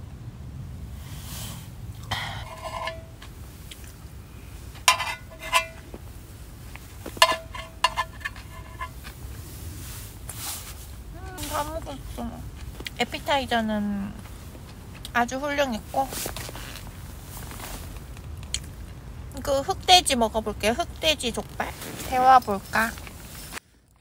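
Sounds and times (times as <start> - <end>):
utensils clinking against a dish: 2.1 - 3.3, 4.8 - 5.8, 7.1 - 9.0.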